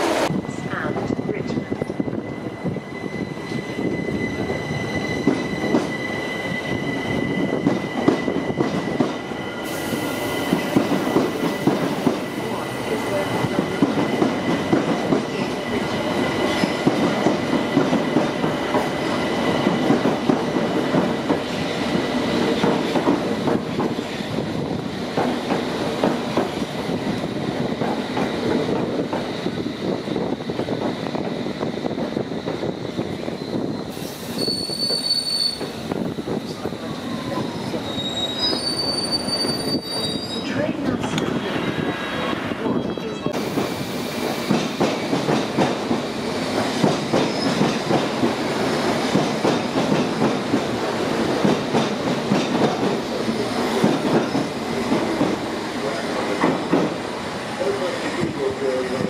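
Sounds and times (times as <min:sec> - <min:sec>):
train wheels squealing: 0:01.3 - 0:11.2, 0:33.0 - 0:35.8, 0:36.5 - 0:40.6, 0:47.2 - 0:47.8.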